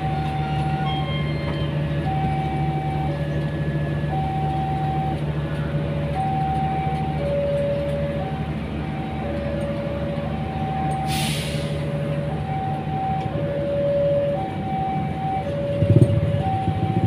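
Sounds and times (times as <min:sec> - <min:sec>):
two-tone level-crossing alarm: 0:00.0 - 0:03.1
train coaches rumbling past: 0:00.0 - 0:17.0.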